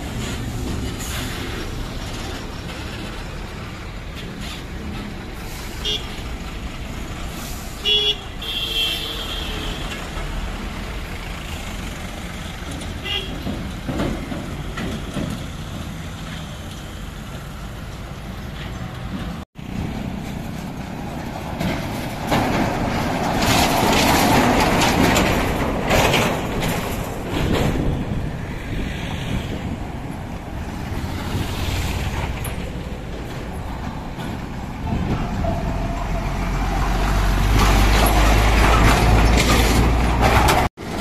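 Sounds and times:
highway traffic rolling past: 0.0 - 41.0
wind: 0.0 - 41.0
vehicle horn tooting: 7.8 - 10.0, 13.0 - 13.4.

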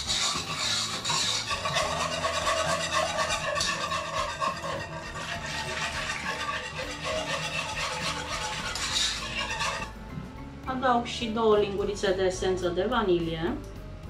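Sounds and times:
wire whisk scraping a pot: 0.0 - 10.0.

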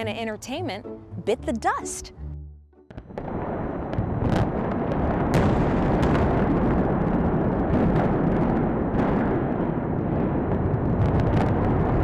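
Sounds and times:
demolition charges exploding: 3.1 - 12.0.

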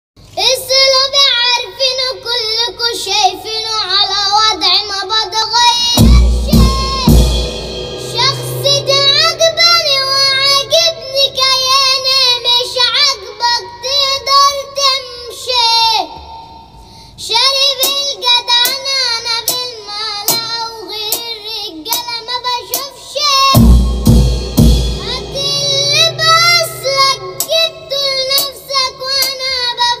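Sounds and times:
child singing: 0.4 - 16.3, 17.2 - 30.0
drum kit hits: 6.0 - 12.5, 23.6 - 30.0.

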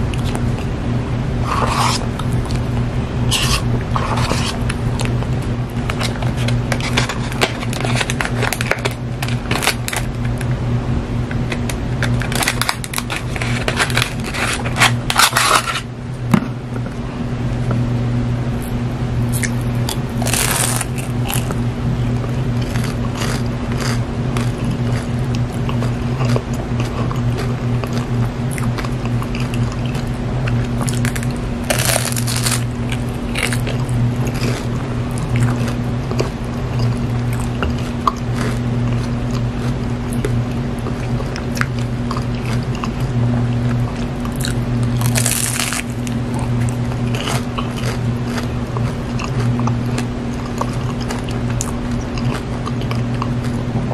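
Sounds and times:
steady low hum: 0.0 - 53.9
crunching pie crust: 1.4 - 10.6, 11.2 - 15.9, 19.2 - 53.9
paper sleeve crackling: 6.0 - 10.1, 11.6 - 15.8.

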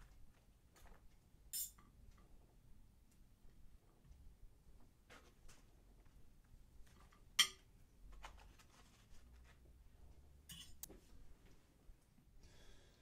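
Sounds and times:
knife and fork clinking on plate: 10.5 - 10.9.

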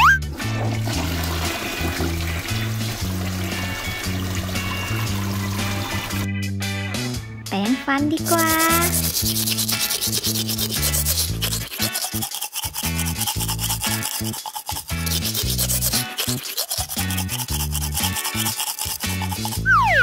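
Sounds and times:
toothbrush scrubbing: 8.2 - 19.7
music with bouncing bass line: 19.3 - 20.0.

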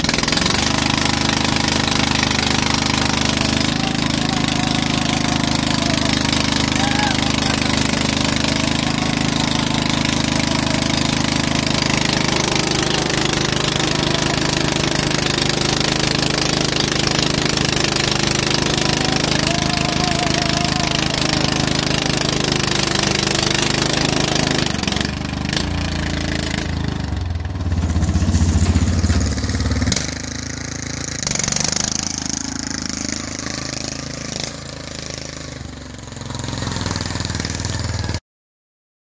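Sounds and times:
lawn tractor engine revving: 0.0 - 38.2.

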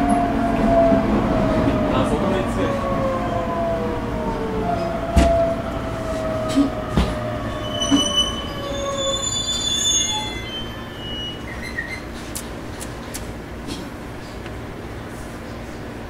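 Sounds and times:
train inverter whining: 0.0 - 16.0
sharp knocks: 5.1 - 5.4
high brake squealing: 7.4 - 12.4.

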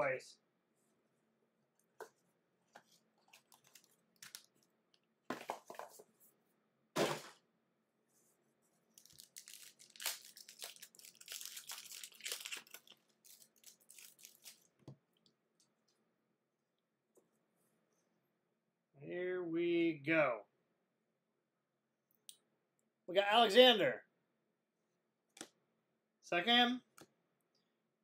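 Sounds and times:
foil pack tearing and crinkling: 9.0 - 14.7.

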